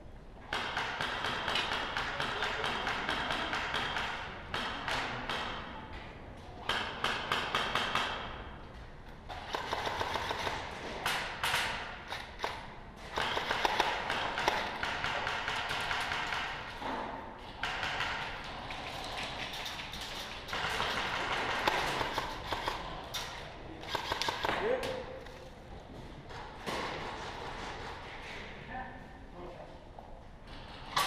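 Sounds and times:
airsoft gunfire: 9.3s - 16.7s, 17.6s - 18.4s, 20.5s - 22.9s, 23.8s - 24.6s.

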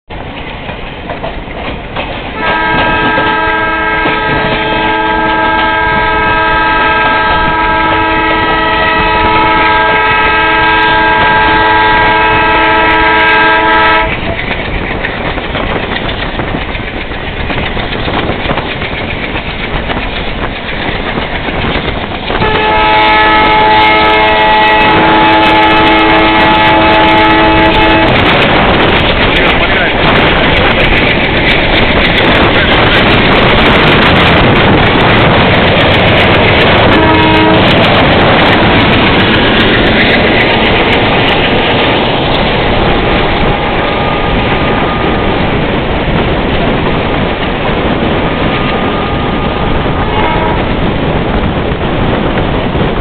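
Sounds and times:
train running noise: 0.1s - 53.0s
locomotive horn blasts: 2.4s - 14.2s, 22.3s - 28.9s, 35.7s - 39.2s, 43.5s - 45.3s, 48.4s - 50.9s.

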